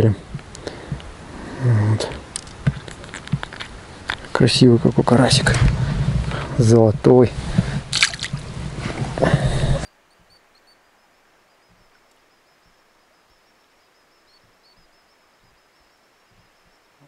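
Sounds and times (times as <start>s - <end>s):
hands splashing in water: 7.9s - 8.4s.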